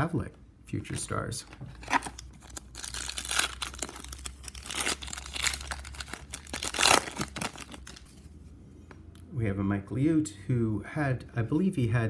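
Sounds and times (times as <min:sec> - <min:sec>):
foil wrapper crinkling: 0:02.3 - 0:08.1.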